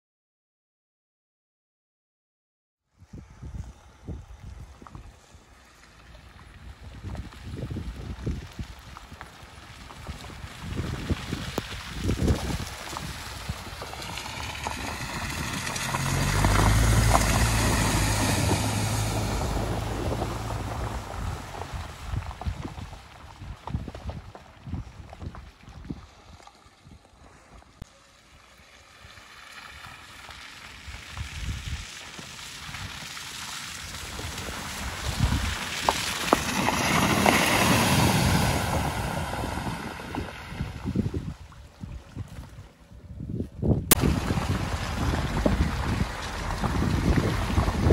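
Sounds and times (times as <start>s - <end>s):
wind buffeting microphone: 3.0s - 27.8s, 30.8s - 33.2s, 33.8s - 47.9s
tyres splashing through puddles: 3.0s - 47.9s
car engine drone driving past: 13.2s - 22.2s.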